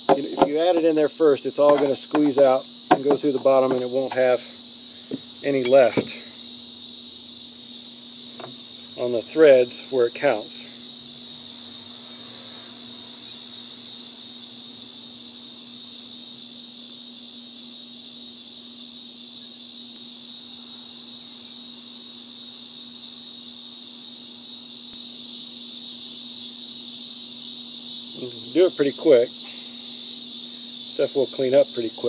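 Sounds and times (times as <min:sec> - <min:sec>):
steady low hum: 0:00.0 - 0:12.1
insects trilling: 0:00.0 - 0:32.0.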